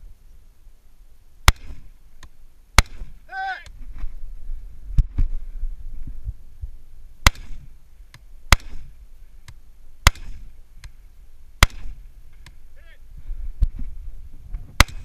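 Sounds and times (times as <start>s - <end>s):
rifle shots with echo: 8.5s - 8.9s, 10.0s - 10.5s, 11.6s - 12.1s, 14.8s - 15.0s.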